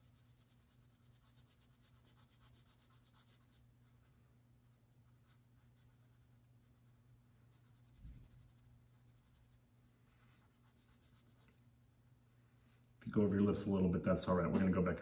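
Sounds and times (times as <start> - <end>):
crayon scratching on paper: 0.0 - 4.0, 5.0 - 11.6
low steady hum: 0.0 - 15.0
soft dull bump: 14.4 - 14.9.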